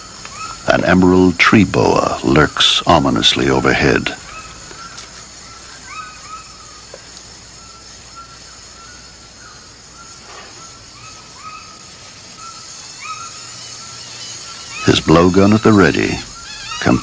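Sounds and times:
chirping animal call: 0.0 - 17.0
insect drone: 0.0 - 17.0.

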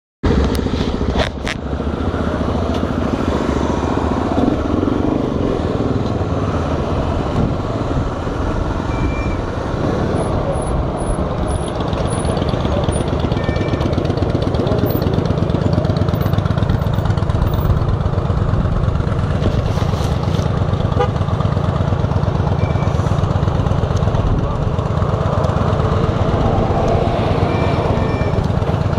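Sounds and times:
motorcycle engine idling: 11.2 - 28.9.

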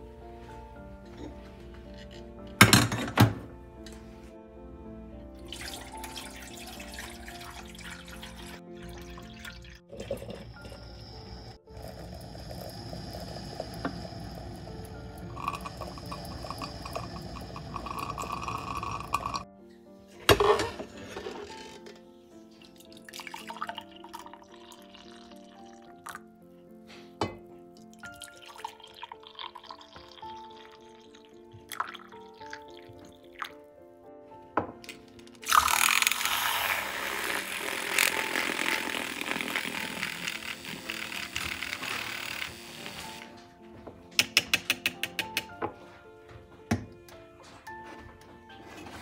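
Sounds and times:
soft background music: 0.0 - 49.0
coffee pouring into a mug: 5.4 - 19.4, 22.6 - 26.3, 27.8 - 33.5, 35.4 - 43.3
coffee maker trickling and gurgling: 5.5 - 19.4, 22.6 - 26.2, 27.9 - 33.5, 35.4 - 43.3
milk frother buzzing whir: 10.0 - 19.4, 35.5 - 43.3.

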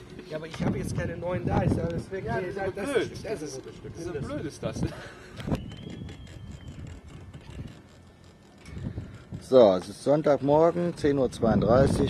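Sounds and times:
faint high whistle: 5.5 - 7.0.

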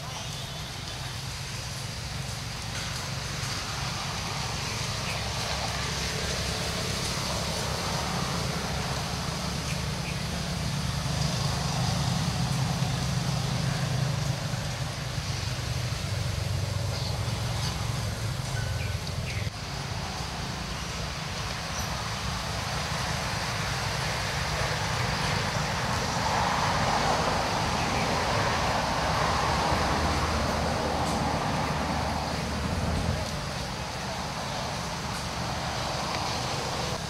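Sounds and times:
hiss: 0.0 - 37.0.

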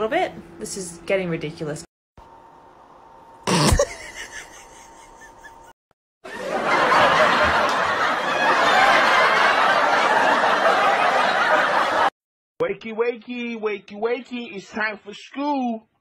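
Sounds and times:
crowd laughing: 3.9 - 12.2.

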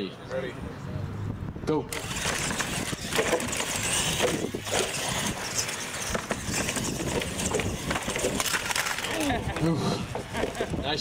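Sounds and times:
rc truck motor whine: 1.9 - 10.7
toy trucks clattering: 1.9 - 11.0.

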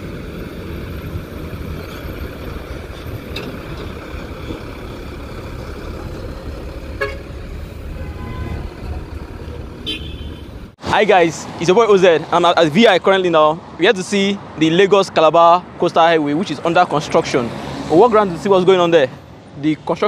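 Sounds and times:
motor vehicles rumbling: 0.0 - 20.0
short horn toot: 7.9 - 8.8.

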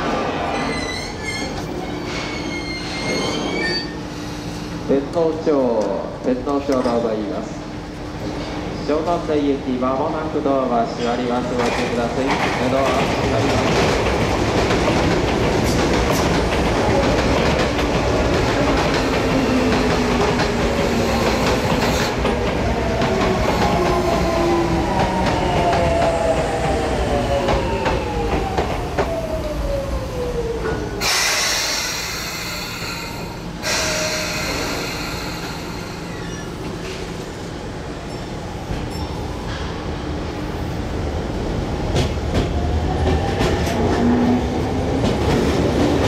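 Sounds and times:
electric train passing: 13.0 - 46.0
loud hiss: 31.0 - 36.2.

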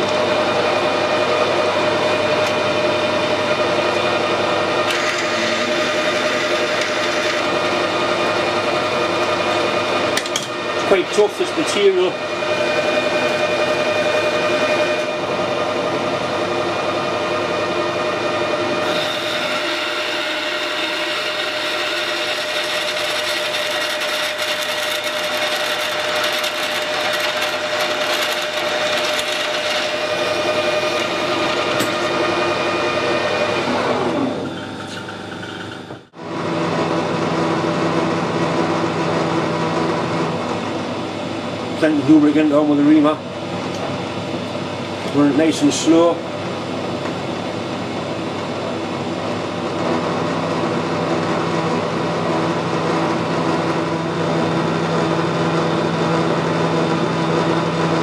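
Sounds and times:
metal lathe whining: 0.0 - 42.8.

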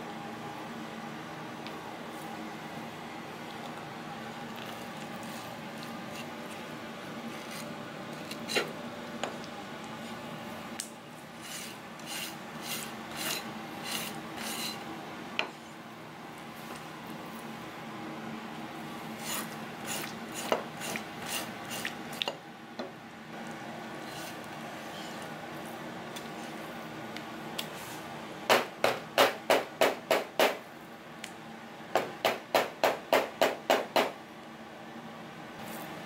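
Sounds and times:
knife scraping fish fillet: 4.6 - 8.7, 11.4 - 14.8, 19.2 - 22.0, 24.0 - 25.3.

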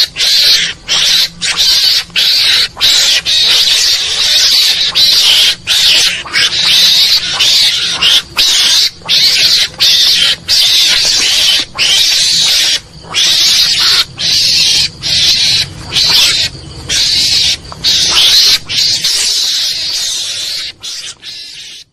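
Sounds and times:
mongoose hissing screeches: 0.0 - 21.9.

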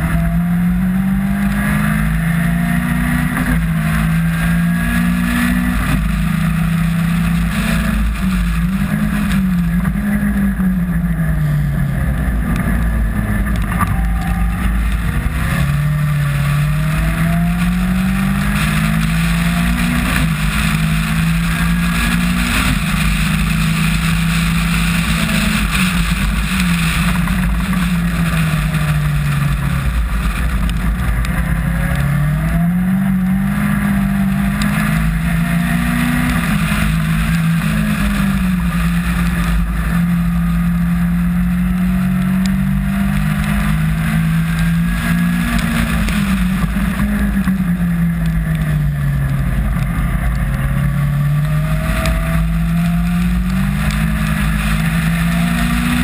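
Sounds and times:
race car engine revving: 0.0 - 56.0
wind rushing: 12.0 - 25.5.

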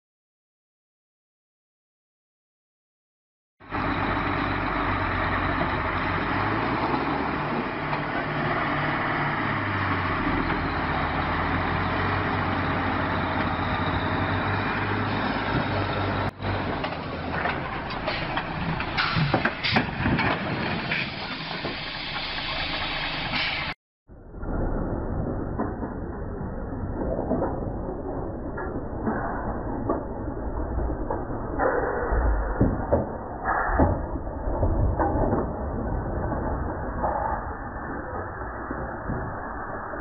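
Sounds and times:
diesel truck engine running: 3.7 - 23.8.

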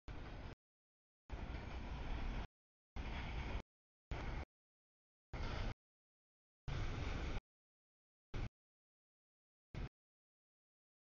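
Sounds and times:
freight train wheels on rails: 0.1 - 0.6, 1.3 - 4.5.

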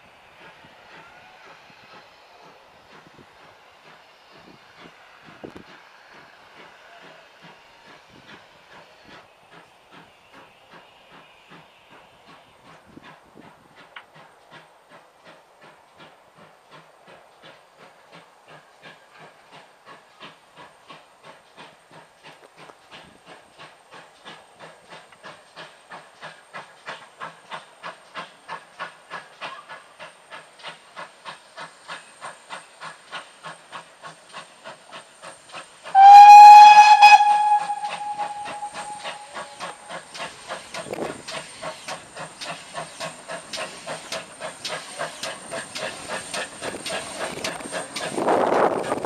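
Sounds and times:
steam locomotive chuffing: 0.0 - 49.0
steam whistle: 35.9 - 39.8.

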